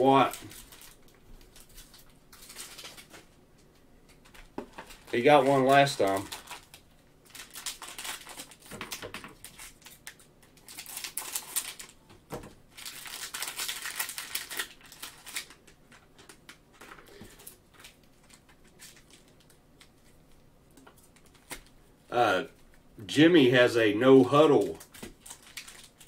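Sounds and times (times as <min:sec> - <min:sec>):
plastic wrappers crinkling: 0:00.0 - 0:21.8, 0:24.3 - 0:26.0.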